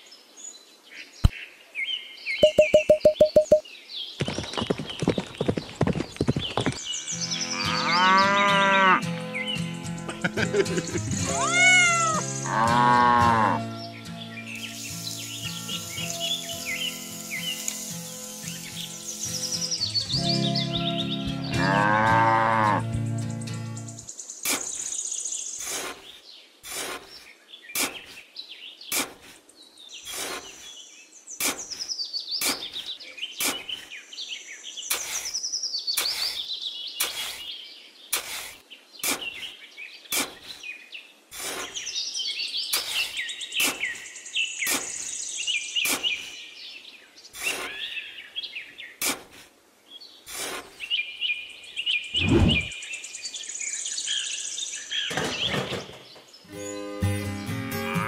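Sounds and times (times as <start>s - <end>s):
songbirds chirping: 0.0s - 58.0s
trowel scraping damp sand: 25.6s - 28.2s, 28.9s - 29.4s, 30.1s - 30.8s, 31.4s - 31.8s, 32.4s - 32.8s, 33.4s - 33.9s, 34.9s - 35.4s, 36.0s - 36.4s, 37.0s - 37.5s, 38.1s - 39.5s, 40.1s - 40.6s, 41.3s - 41.9s, 42.7s - 44.0s, 44.6s - 45.0s, 45.8s - 46.3s, 47.4s - 47.9s, 49.0s - 49.5s, 50.3s - 50.8s.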